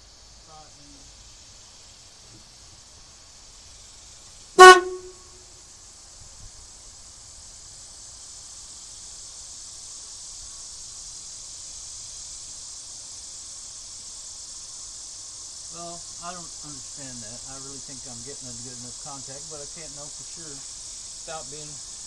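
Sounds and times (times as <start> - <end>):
car horn honk: 4.6 - 5.3.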